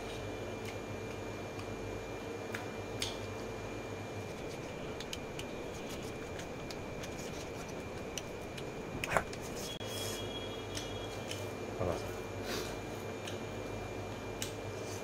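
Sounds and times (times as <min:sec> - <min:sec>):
fingers mixing food on steel plate: 0:04.2 - 0:09.8.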